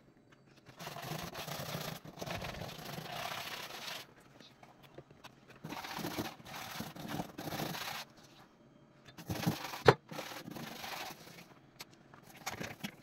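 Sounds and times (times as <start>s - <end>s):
brush scrubbing stovetop: 9.2s - 11.5s.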